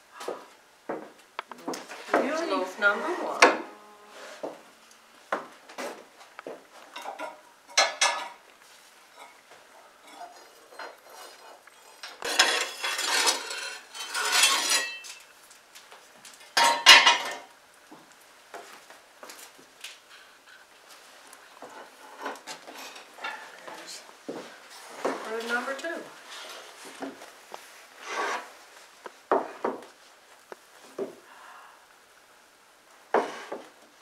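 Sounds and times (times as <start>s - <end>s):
baking pans scraping on brick: 1.9s - 4.6s, 9.1s - 15.3s, 28.0s - 28.6s.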